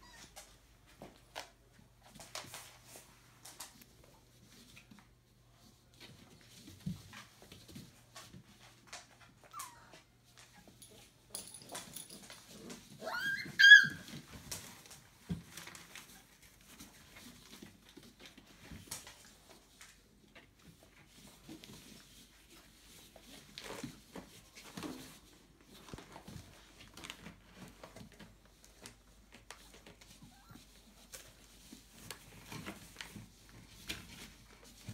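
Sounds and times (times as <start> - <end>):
puppies squeaking and scuffling: 0.0 - 0.6, 6.0 - 18.8, 20.6 - 34.9
high-pitched puppy yelp: 9.4 - 10.0, 13.0 - 14.2.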